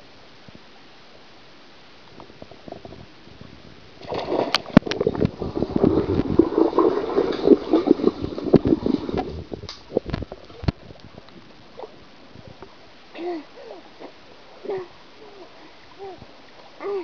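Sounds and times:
underwater gurgling bubbling water: 1.8s - 13.1s
dog splashing into pool: 4.0s - 9.5s.

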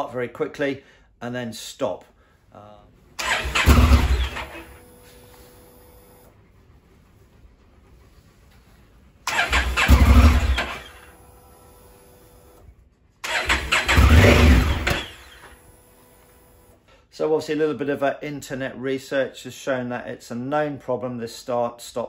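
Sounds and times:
motorcycle engine starting and stalling: 3.2s - 4.9s, 9.2s - 11.3s, 13.2s - 15.6s.

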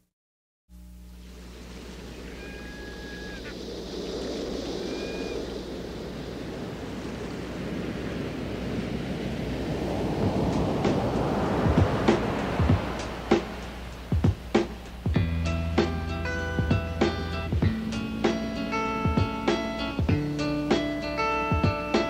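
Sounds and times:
ocean surf washing in: 1.0s - 22.0s
short high cries: 2.2s - 3.6s, 4.8s - 5.5s
music with struck notes: 11.7s - 22.0s.

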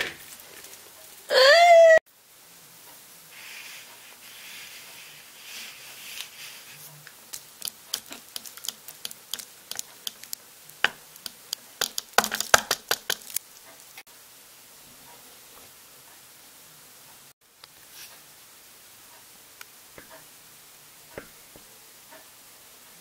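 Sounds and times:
soft hiss: 2.1s - 11.8s, 13.3s - 23.0s
sharp crackles and clicks: 5.6s - 14.0s.

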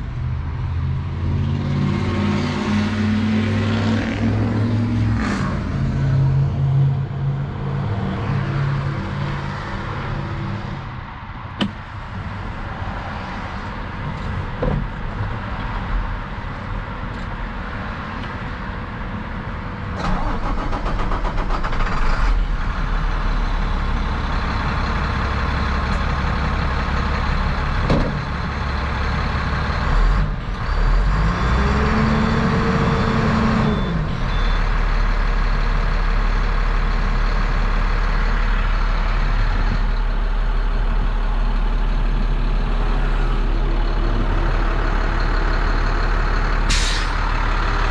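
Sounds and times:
diesel truck engine idling: 13.5s - 47.9s.

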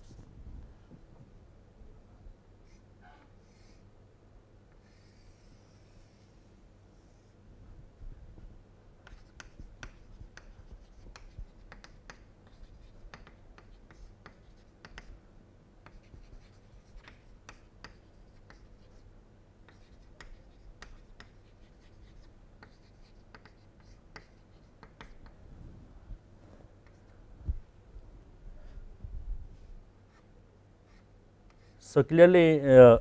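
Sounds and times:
low room hum: 0.0s - 33.0s
chalk tapping and scratching: 9.0s - 15.2s, 15.8s - 25.4s, 30.1s - 31.8s.

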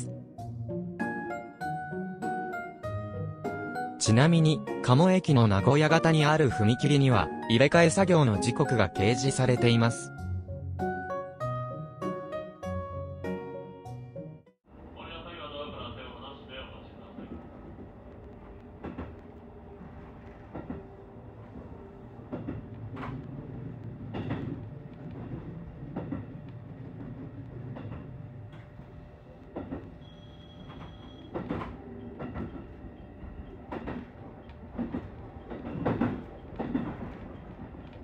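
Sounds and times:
train rumble: 14.7s - 38.0s
wheels knocking over rail joints: 33.7s - 38.0s.

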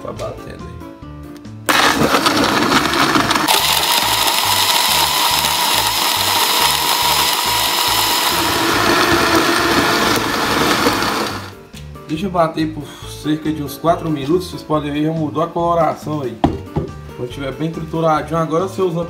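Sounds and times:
blender grinding: 1.7s - 11.6s.

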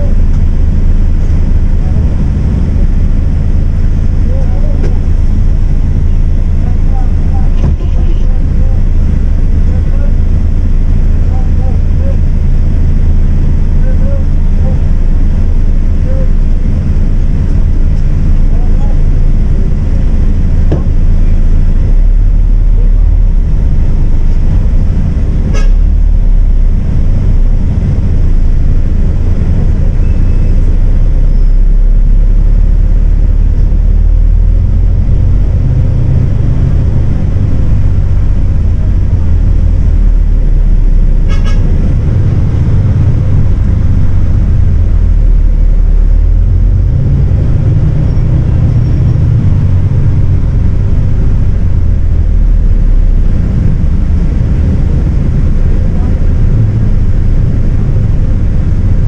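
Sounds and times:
bus diesel engine running: 0.0s - 59.0s
short horn toots: 25.4s - 25.9s, 41.2s - 41.8s.

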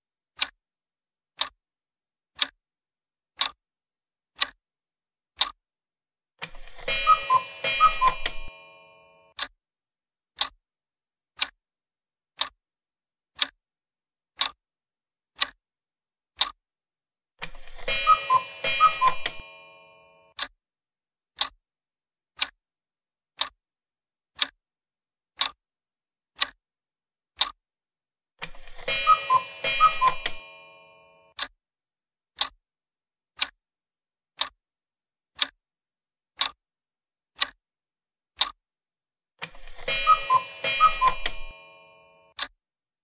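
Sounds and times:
clock ticking: 0.4s - 0.6s, 1.4s - 1.6s, 2.4s - 2.6s, 3.4s - 3.6s, 4.4s - 4.6s, 6.4s - 9.5s, 10.4s - 10.6s, 11.4s - 11.6s, 12.4s - 12.6s, 13.4s - 13.6s, 14.4s - 14.6s, 15.4s - 15.6s, 17.4s - 20.5s, 21.4s - 21.6s, 22.4s - 22.6s, 23.4s - 23.6s, 24.4s - 24.6s, 25.4s - 25.6s, 26.4s - 26.6s, 28.4s - 31.6s, 32.4s - 32.6s, 33.4s - 33.6s, 34.4s - 34.6s, 35.4s - 35.6s, 36.4s - 36.6s, 37.4s - 37.6s, 39.4s - 42.6s.

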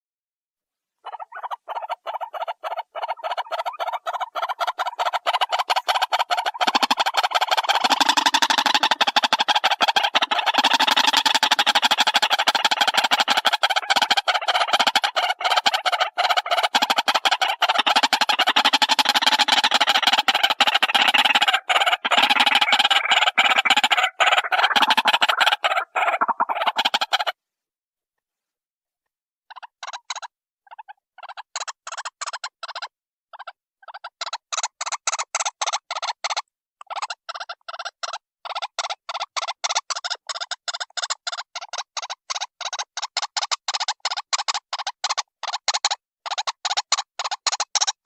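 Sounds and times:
waterhen calling: 1.0s - 27.4s.

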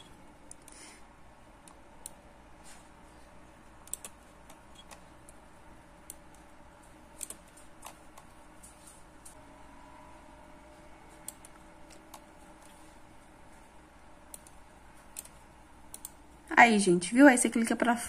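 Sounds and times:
faint steady hum: 0.0s - 18.0s
computer mouse clicks: 0.4s - 0.8s, 3.8s - 5.4s, 7.2s - 9.4s, 11.2s - 12.8s, 14.2s - 16.2s.

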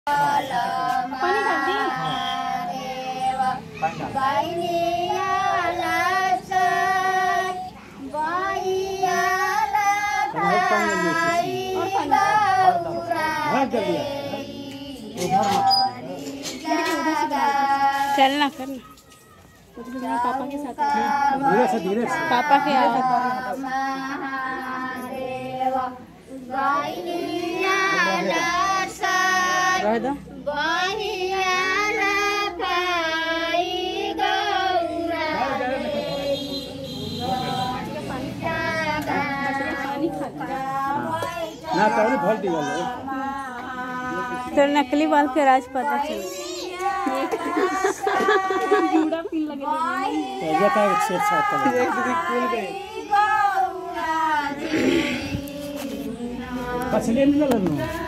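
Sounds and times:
women singing folk song: 0.1s - 18.8s, 19.8s - 58.0s
high-pitched voices singing folk song: 30.4s - 58.0s.

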